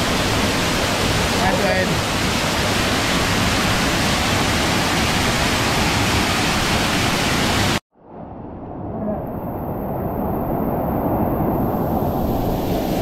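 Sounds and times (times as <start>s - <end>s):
waterfall rushing: 0.0s - 7.8s.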